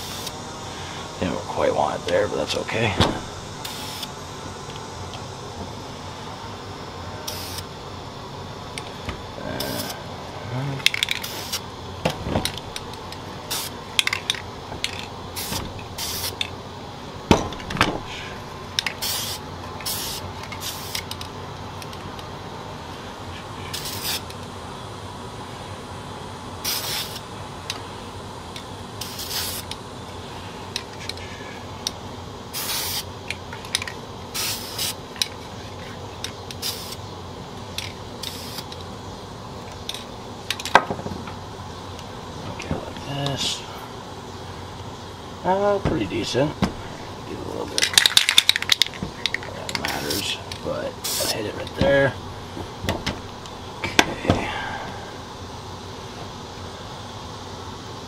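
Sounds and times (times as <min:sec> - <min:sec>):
spray paint can hissing: 0:00.0 - 0:00.4, 0:03.2 - 0:05.2, 0:07.2 - 0:07.8, 0:09.6 - 0:10.0, 0:10.8 - 0:11.7, 0:12.4 - 0:16.6, 0:18.0 - 0:22.0, 0:23.7 - 0:24.5, 0:26.6 - 0:27.8, 0:28.5 - 0:31.2, 0:31.8 - 0:37.1, 0:37.7 - 0:38.9, 0:47.8 - 0:51.5.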